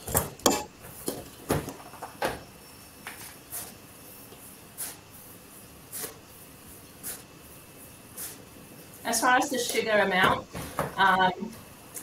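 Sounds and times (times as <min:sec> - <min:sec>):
utensil knocking on metal pot: 0:00.5 - 0:00.7.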